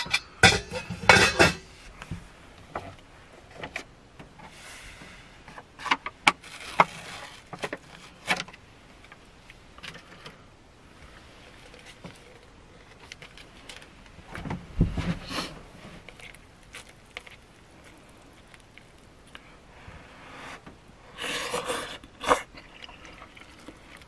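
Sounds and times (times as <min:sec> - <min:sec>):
pots clanking: 0:00.0 - 0:01.7.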